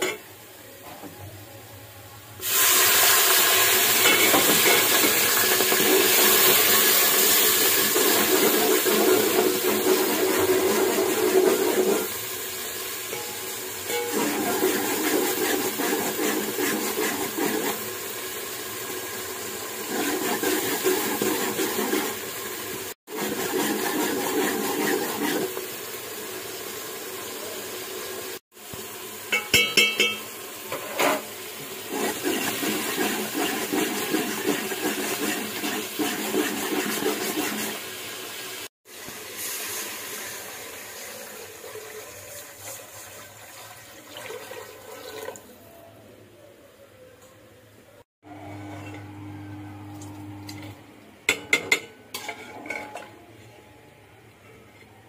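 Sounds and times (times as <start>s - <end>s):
hissing sizzle in hot oil: 2.4s - 43.6s
metal spoon stirring in pot: 31.9s - 37.8s, 51.3s - 53.2s.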